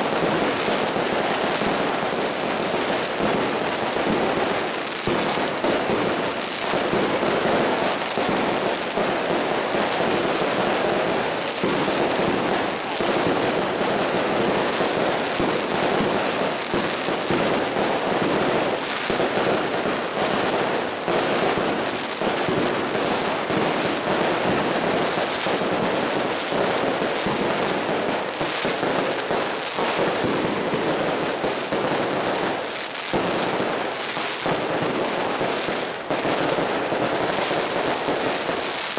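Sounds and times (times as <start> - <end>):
crackle of firework bangs and pops: 0.0 - 38.9.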